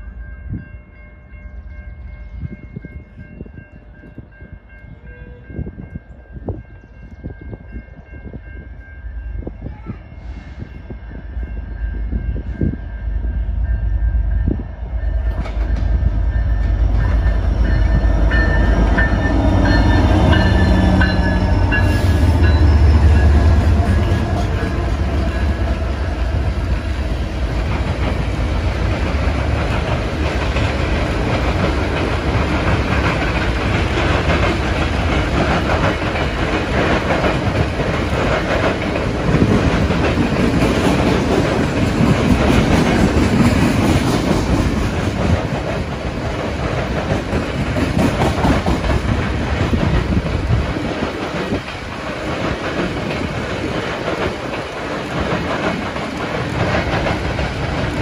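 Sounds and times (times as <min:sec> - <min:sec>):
distant train horn: 0:04.8 - 0:05.8, 0:09.1 - 0:26.8
locomotive rumble: 0:10.6 - 0:58.0
train wheels clattering on rails: 0:15.0 - 0:58.0.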